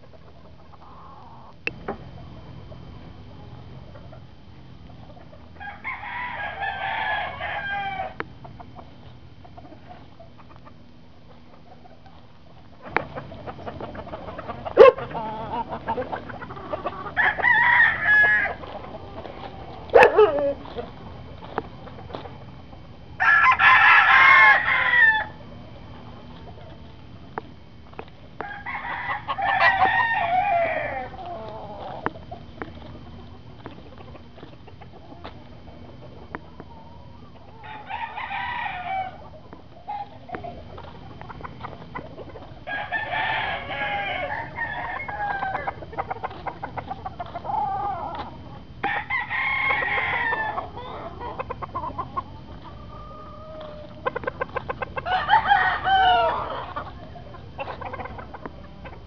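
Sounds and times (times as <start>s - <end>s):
chickens clucking: 0.0s - 59.0s
roosters crowing: 0.0s - 59.0s.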